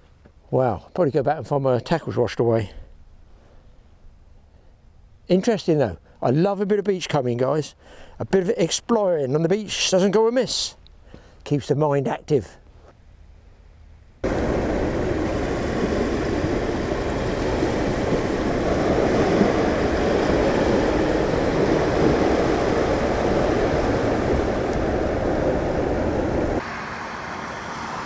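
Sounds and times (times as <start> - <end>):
wind: 0.0 - 28.0
sea rushing: 14.2 - 28.0.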